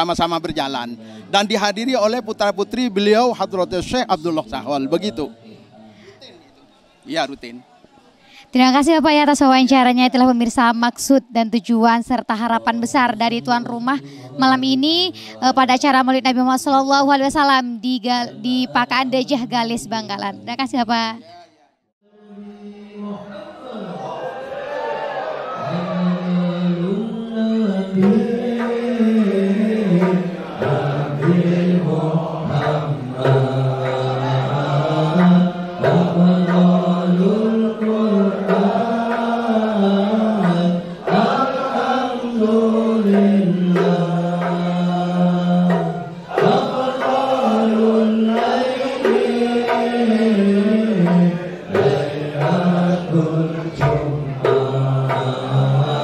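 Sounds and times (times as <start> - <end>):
men chanting melodic phrases: 18.0 - 20.8, 22.1 - 56.0
hand-struck frame drums: 28.0 - 56.0.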